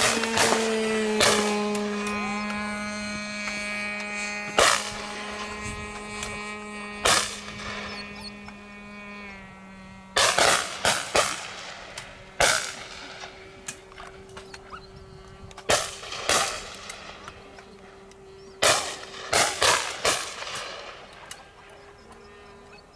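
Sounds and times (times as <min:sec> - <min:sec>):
shotgun shots: 0:00.0 - 0:02.2, 0:10.2 - 0:11.8, 0:12.4 - 0:13.3, 0:15.7 - 0:17.2, 0:18.6 - 0:21.1.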